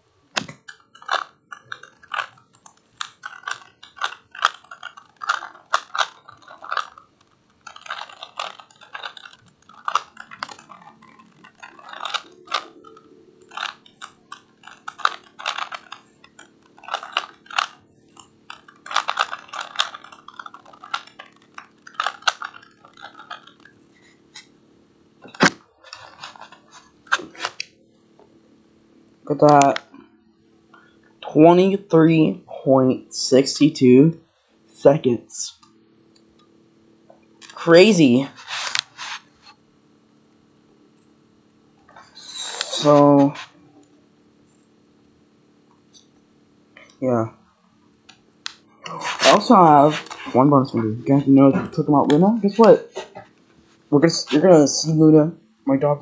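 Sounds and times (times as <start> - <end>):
puzzle cube plastic clicking: 0.3 - 23.7.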